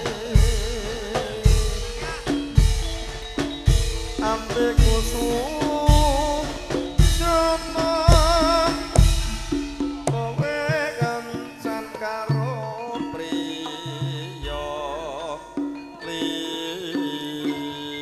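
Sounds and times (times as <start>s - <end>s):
heavy drum beats: 0.0s - 12.6s
wavering melody line: 0.0s - 18.0s.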